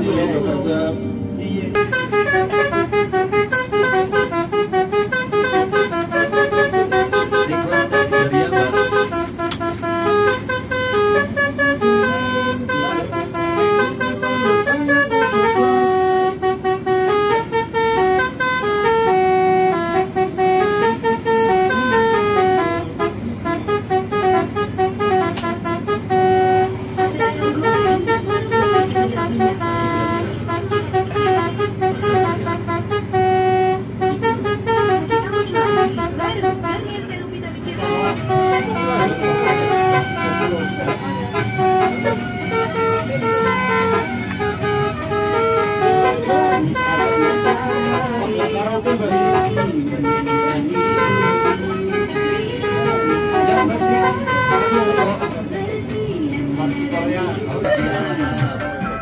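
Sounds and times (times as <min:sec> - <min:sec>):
bus engine running: 0:00.0 - 0:59.0
multi-tone bus horn tune: 0:00.0 - 0:59.0.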